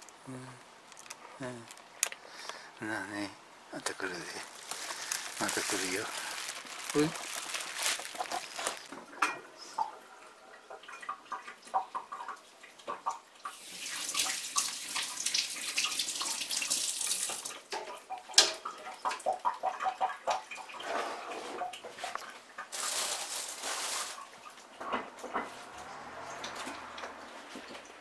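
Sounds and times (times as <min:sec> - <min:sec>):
water running: 0:03.0 - 0:24.8.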